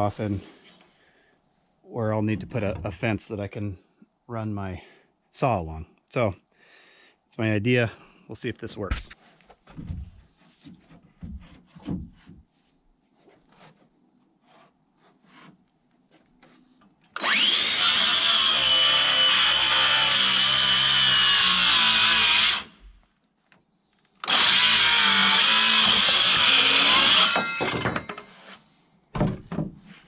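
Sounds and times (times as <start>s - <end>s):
saw blade spinning down: 17.2s - 22.7s
circular saw cutting wood: 17.2s - 22.8s, 24.2s - 28.6s.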